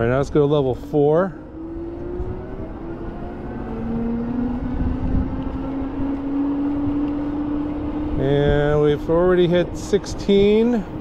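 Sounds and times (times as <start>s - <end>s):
wind rumble on microphone: 0.0s - 11.0s
electric bike motor whining: 1.4s - 8.2s.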